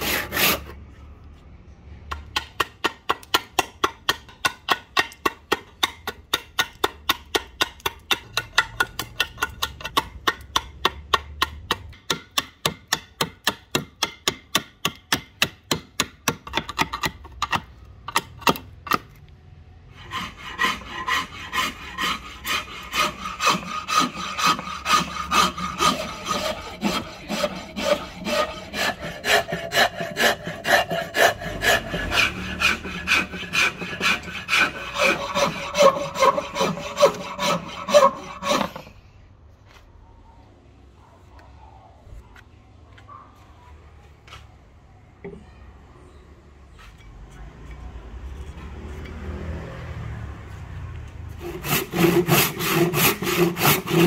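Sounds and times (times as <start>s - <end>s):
file rasping on wood: 0.0s - 0.8s, 2.3s - 18.3s, 19.9s - 38.9s, 51.4s - 54.0s.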